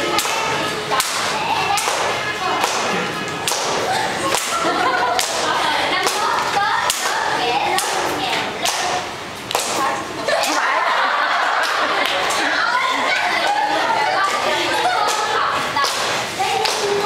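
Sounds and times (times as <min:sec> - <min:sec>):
crowd voices: 0:00.0 - 0:17.0
stick whip-like cracks: 0:00.2 - 0:04.6, 0:06.8 - 0:10.6.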